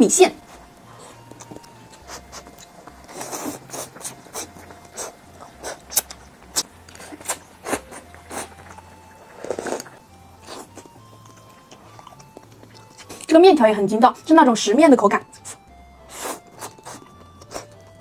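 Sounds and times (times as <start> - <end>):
mouth clicks and chewing smacks: 1.2 - 8.6
noodle slurps: 9.3 - 10.0.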